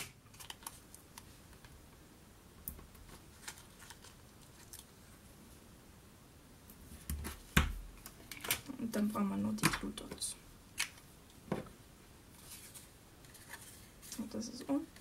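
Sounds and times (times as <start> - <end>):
cardstock clicks and rustles: 0.0 - 1.0, 2.8 - 4.9.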